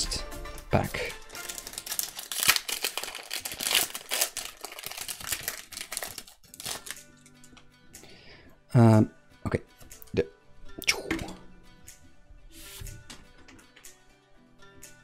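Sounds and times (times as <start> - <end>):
foil wrapper crinkling and tearing: 1.2 - 7.3.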